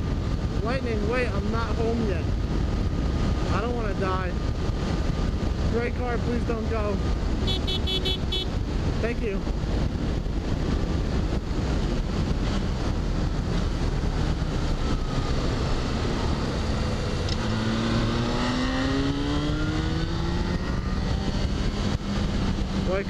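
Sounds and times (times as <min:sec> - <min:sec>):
wind rush on helmet: 0:00.0 - 0:23.0
motorcycle engine: 0:07.0 - 0:23.0.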